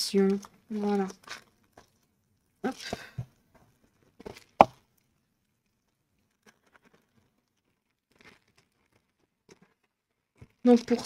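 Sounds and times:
faint plastic crinkles: 0.1 - 11.0
plastic packets rustling: 6.4 - 11.0.

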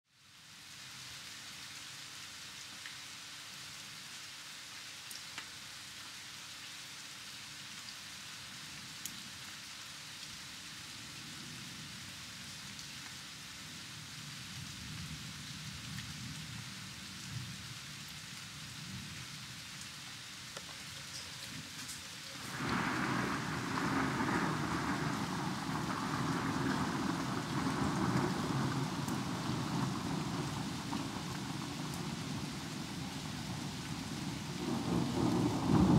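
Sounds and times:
steady rain hiss: 0.1 - 35.9
raindrop ticks: 5.1 - 5.5, 20.5 - 33.1.

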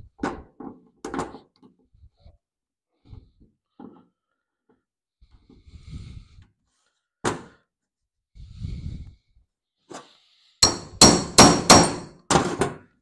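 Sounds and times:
hammer blows on metal: 10.6 - 12.1.

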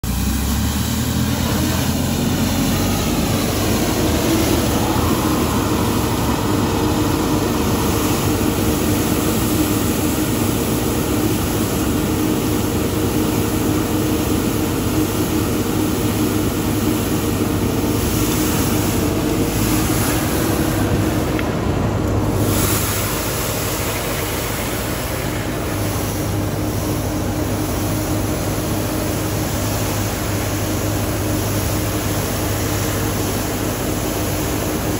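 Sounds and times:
street sweeper humming and hissing: 0.0 - 34.9.

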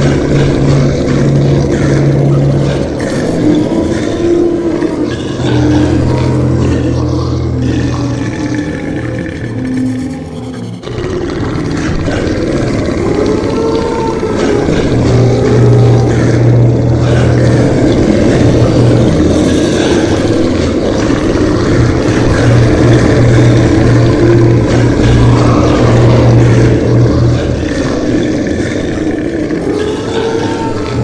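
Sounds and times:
low droning engine-like rumble: 0.0 - 31.0.

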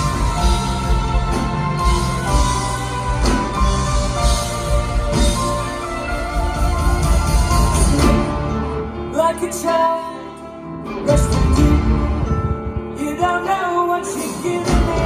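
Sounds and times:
soft-rock band playing live: 0.0 - 15.0
person singing: 6.1 - 15.0.

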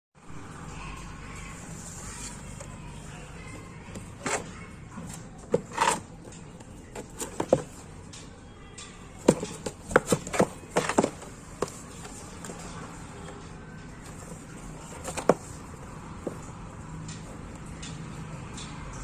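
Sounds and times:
cardboard box tapping on tiled floor: 9.2 - 12.2.

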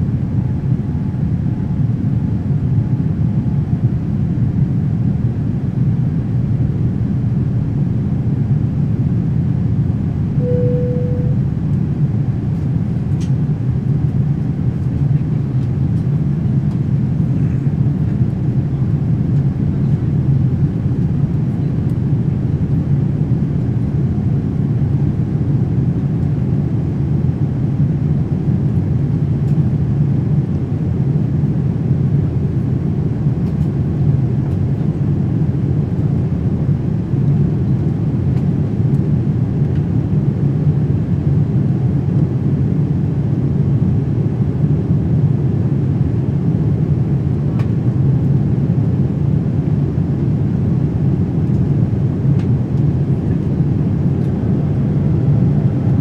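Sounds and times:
airplane cabin low rumble: 0.0 - 56.0
short single tone: 10.4 - 11.5.

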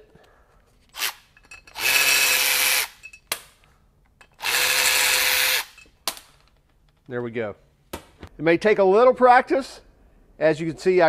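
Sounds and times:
cordless electric ratchet running: 1.8 - 3.0, 4.4 - 5.8.

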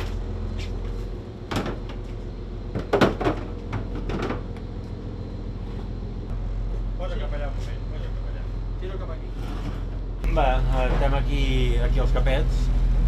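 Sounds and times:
boat engine hum: 0.0 - 13.0
sharp knocks and clatters: 1.5 - 2.0, 2.7 - 4.5.

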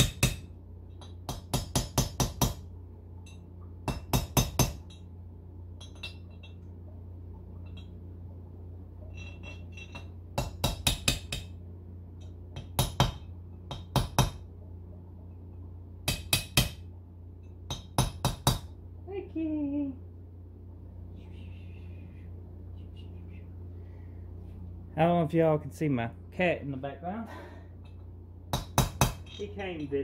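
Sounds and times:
hammer tapping on metal: 0.0 - 2.6, 3.3 - 5.0, 9.5 - 11.6, 12.2 - 14.4, 16.0 - 16.8, 17.4 - 18.8, 27.9 - 29.5
steady low hum: 0.0 - 30.0
faint metal clinks: 9.0 - 10.1.

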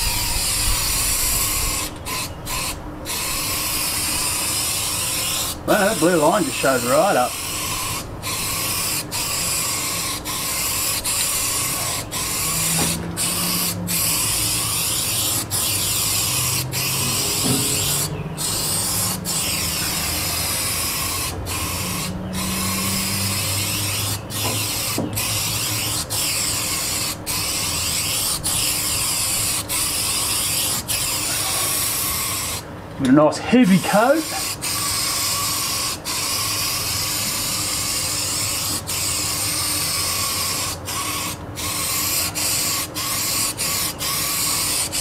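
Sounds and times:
aerosol can spraying hiss: 7.2 - 32.6.

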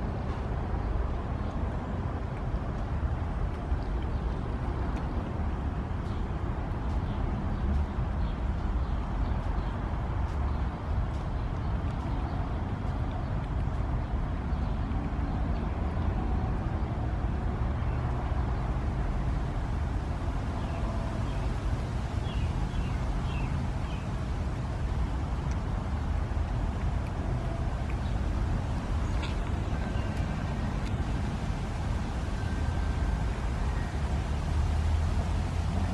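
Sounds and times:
low outdoor rumble: 0.0 - 35.9.

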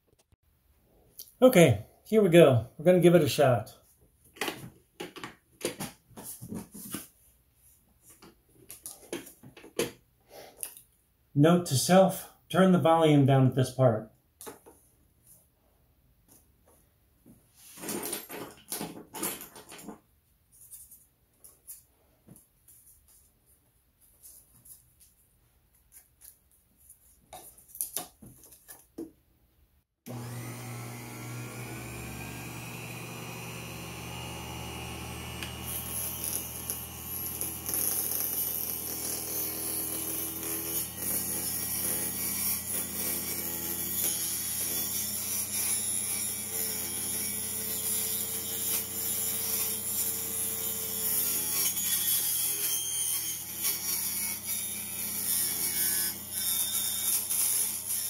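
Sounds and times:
saw blade cutting wood: 30.1 - 58.0
table saw motor humming: 30.1 - 58.0.

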